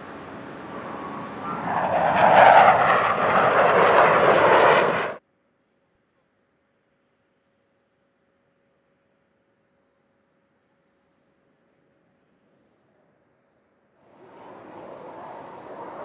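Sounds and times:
fighter jet roaring overhead: 0.0 - 5.2, 14.1 - 16.0.

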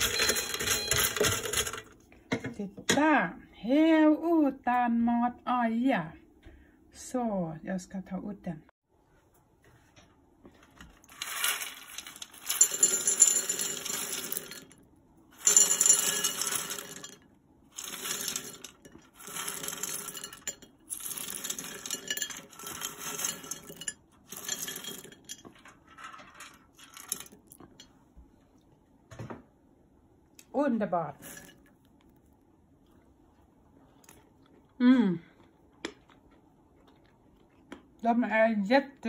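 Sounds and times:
chickpeas rattling into glass bowls: 0.0 - 1.8, 11.1 - 14.8, 15.4 - 27.8.

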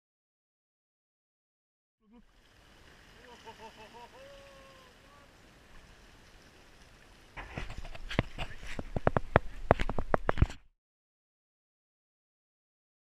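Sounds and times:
water hissing on shore: 2.1 - 9.6
light wind: 2.2 - 10.6.

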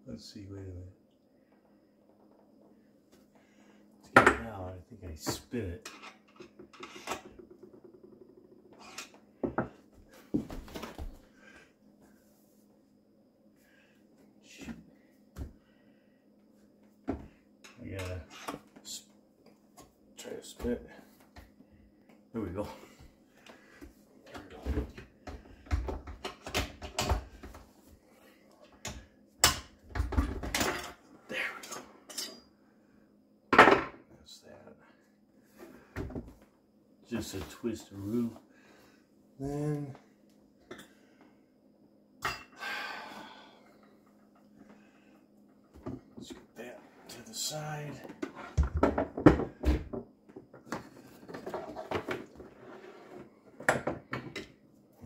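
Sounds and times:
knocks and clunks in cabinet: 48.6 - 50.0.

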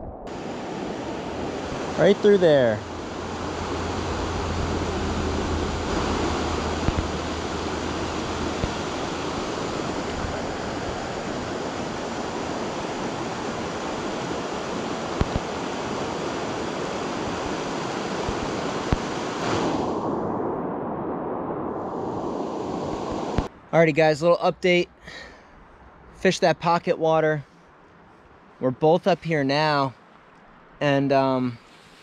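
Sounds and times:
river rushing over rocks: 0.3 - 19.3
low bumps: 2.7 - 11.3.

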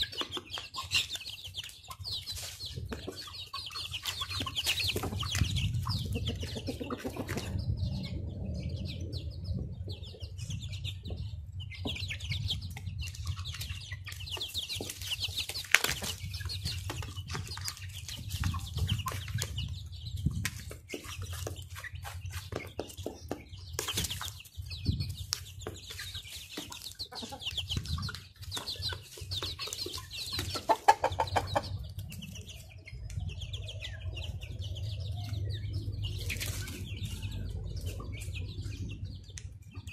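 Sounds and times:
chicks clucking and peeping: 0.0 - 39.9
steady low rumble: 4.8 - 14.2, 31.4 - 39.9.

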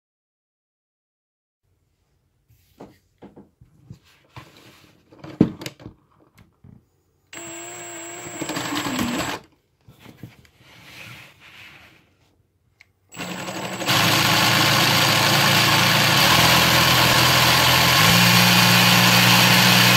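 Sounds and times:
drill motor whine: 7.3 - 9.4, 13.1 - 19.9.

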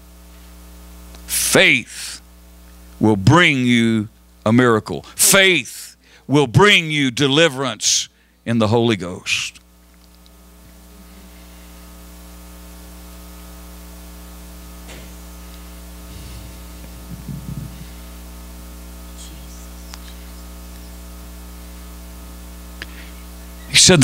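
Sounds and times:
electrical mains hum: 0.0 - 24.0
brief low rumble: 16.0 - 18.2.

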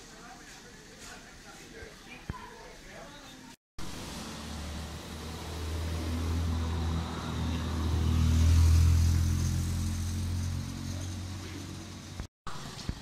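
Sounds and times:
vehicle engine passing: 3.8 - 12.3.

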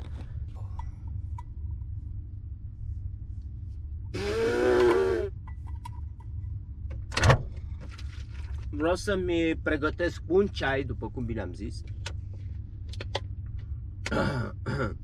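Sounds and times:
steady low hum: 0.0 - 15.0
man groaning: 4.2 - 5.3.

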